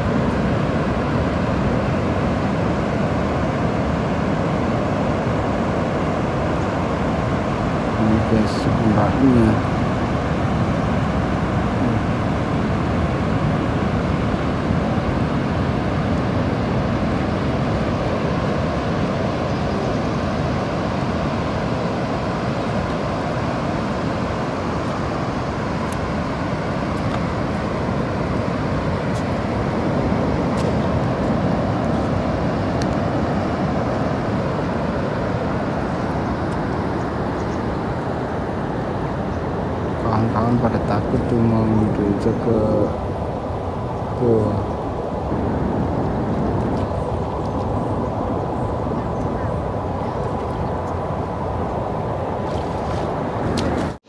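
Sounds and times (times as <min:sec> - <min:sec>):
distant surf rushing: 0:00.0 - 0:54.0.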